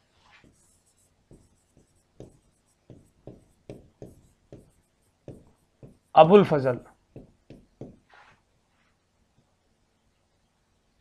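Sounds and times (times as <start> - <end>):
pen tapping and stroking on board: 0.4 - 6.2, 7.0 - 8.1.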